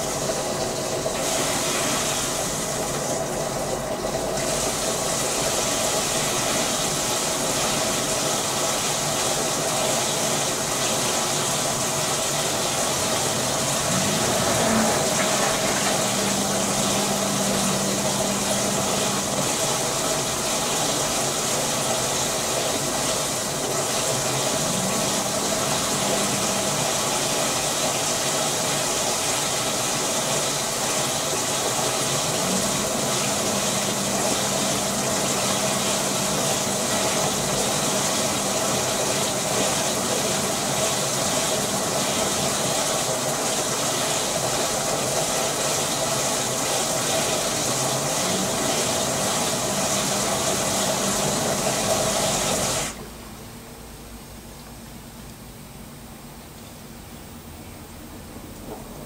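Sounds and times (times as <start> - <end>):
water rushing into drum: 0.0 - 53.4
drum motor hum: 12.0 - 52.9.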